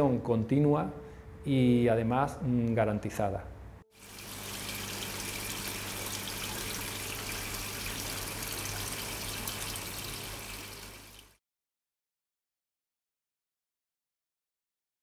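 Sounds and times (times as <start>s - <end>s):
water running and trickling: 3.9s - 11.4s.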